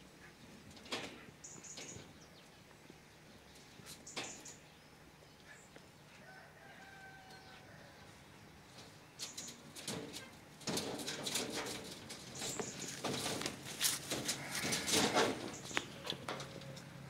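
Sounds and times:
dry hay rustling: 0:11.4 - 0:16.1.

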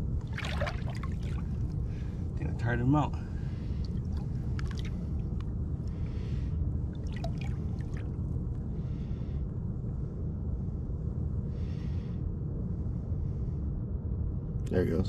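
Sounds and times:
low rumble: 0:00.0 - 0:15.0
water splashing: 0:00.2 - 0:01.7, 0:03.8 - 0:05.2, 0:07.0 - 0:08.1.

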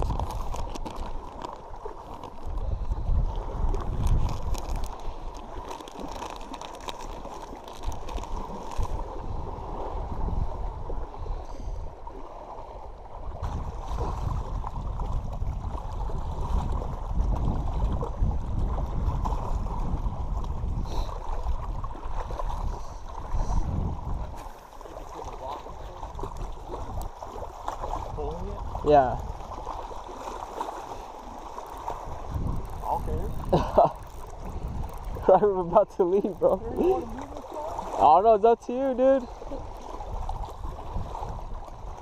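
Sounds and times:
wind buffeting microphone: 0:00.0 - 0:05.6, 0:07.8 - 0:12.2, 0:12.9 - 0:24.5, 0:25.2 - 0:42.0
waves lapping on rocks: 0:00.0 - 0:42.0
plastic packet crinkling: 0:04.0 - 0:08.9.

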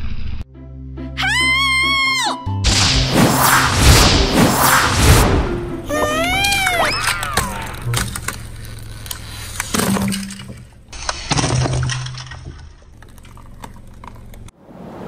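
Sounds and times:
ice cracking under a tyre: 0:07.5 - 0:14.5.

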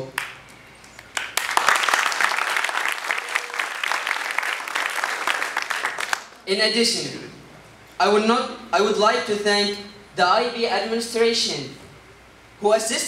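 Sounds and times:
audience applauding: 0:00.2 - 0:06.4.

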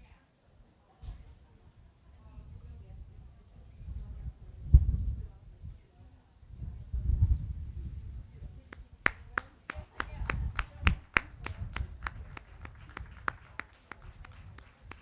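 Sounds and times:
rhythmic hand clapping: 0:08.7 - 0:15.0.

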